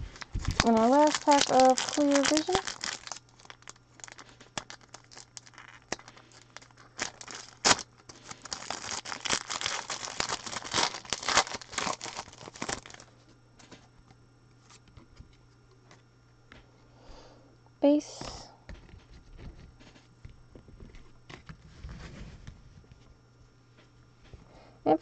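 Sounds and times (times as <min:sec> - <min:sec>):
wrapper tearing and crinkling: 0:00.0 - 0:13.1.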